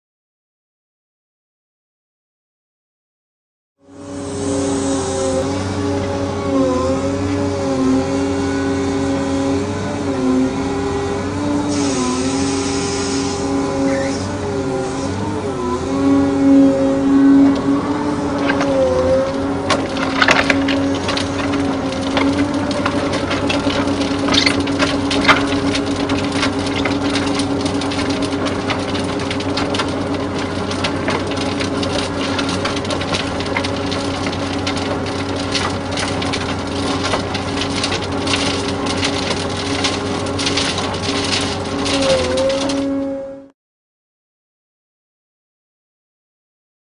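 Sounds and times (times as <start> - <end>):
excavator engine and hydraulics hum: 3.8 - 43.5
soil and stones clattering in drum: 18.3 - 43.0.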